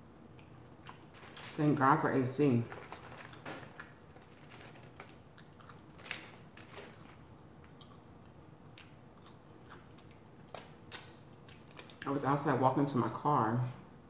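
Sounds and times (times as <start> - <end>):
chewing clicks: 7.6 - 12.1.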